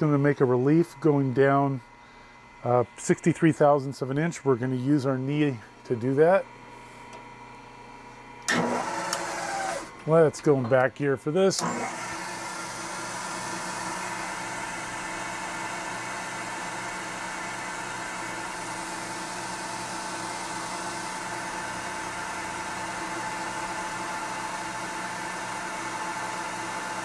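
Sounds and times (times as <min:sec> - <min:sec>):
milling machine whine: 0:08.4 - 0:27.0.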